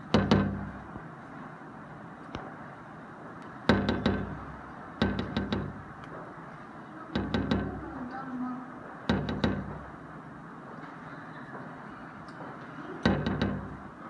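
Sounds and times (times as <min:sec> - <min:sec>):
sharp knocks: 0:00.0 - 0:01.0, 0:03.6 - 0:06.3, 0:07.1 - 0:08.1, 0:09.0 - 0:10.1, 0:13.0 - 0:14.0.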